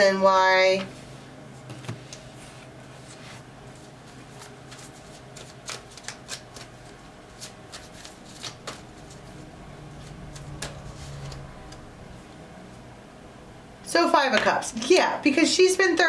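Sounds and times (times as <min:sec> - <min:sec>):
cards snapping while shuffled: 0:04.4 - 0:08.9.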